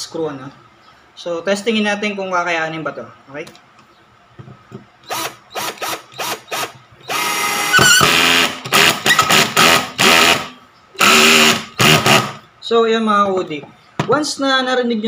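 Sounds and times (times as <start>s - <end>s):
cordless drill driving screw: 5.0s - 12.4s
drill clutch ratcheting: 5.0s - 12.4s.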